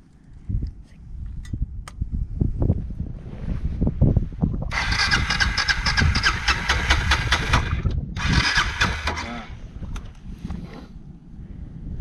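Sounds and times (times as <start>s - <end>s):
motorcycle starter cranking engine: 4.7s - 9.6s.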